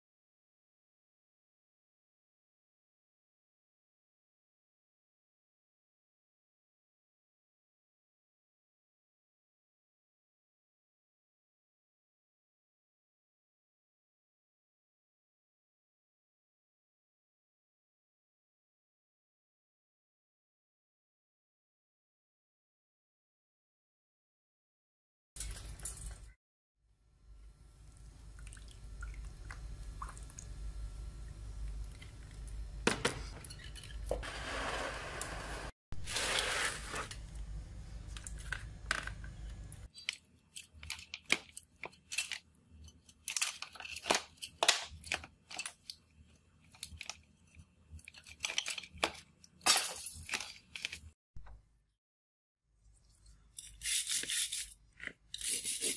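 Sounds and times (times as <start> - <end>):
low hum with faint fizz: 27.0 - 44.1
metal tool clicks and scrapes: 53.6 - 55.9.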